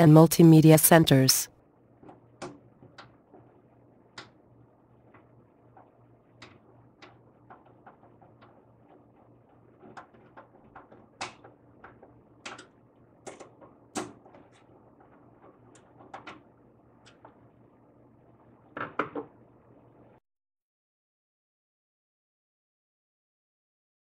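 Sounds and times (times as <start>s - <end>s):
metal and plastic clicks and knocks: 5.1s - 17.4s.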